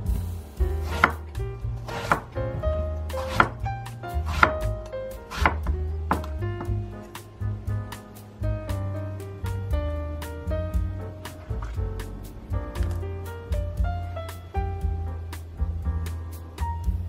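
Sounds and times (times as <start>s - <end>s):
background music: 0.0s - 17.0s
knife chopping on wooden board: 0.8s - 3.6s, 4.2s - 6.7s.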